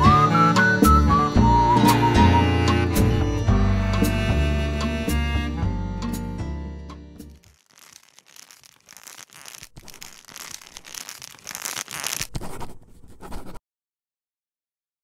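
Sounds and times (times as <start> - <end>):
crackling noise: 7.3 - 13.6.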